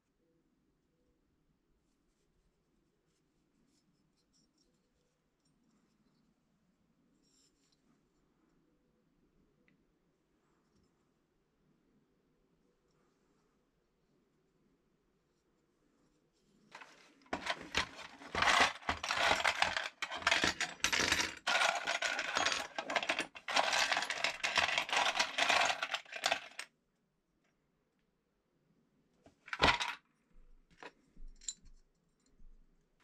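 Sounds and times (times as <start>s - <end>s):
small metal parts clinking: 16.8s - 26.6s, 29.5s - 30.0s.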